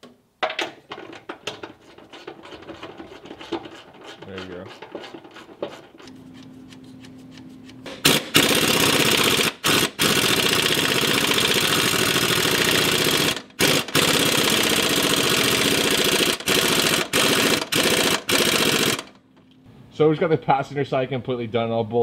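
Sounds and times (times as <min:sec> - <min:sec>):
impact wrench hammering: 0:07.8 - 0:19.1.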